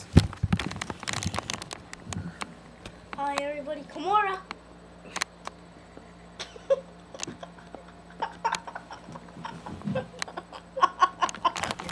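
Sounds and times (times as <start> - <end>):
boy giggling: 6.1 - 11.9.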